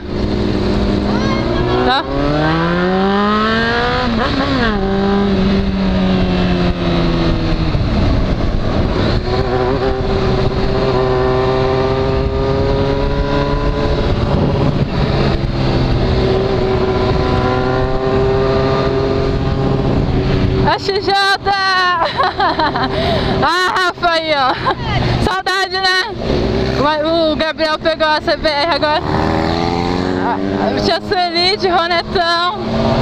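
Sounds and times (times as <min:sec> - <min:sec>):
wind noise on microphone: 0:00.0 - 0:22.1
motorcycle engine revving: 0:00.0 - 0:33.0.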